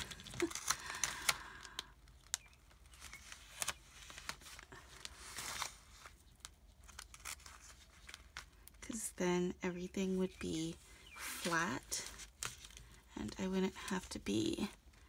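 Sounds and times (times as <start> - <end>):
plastic sheet crinkling: 0.0 - 8.9.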